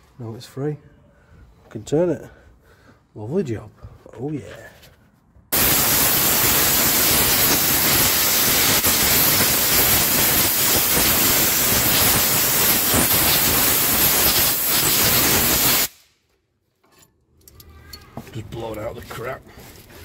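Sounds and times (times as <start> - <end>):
air blow gun hissing: 5.5 - 16.1.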